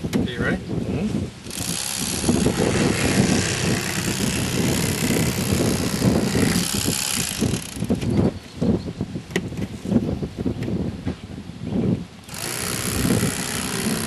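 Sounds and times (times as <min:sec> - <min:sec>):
electric knife motor whirring: 0:01.5 - 0:08.0, 0:12.3 - 0:14.0.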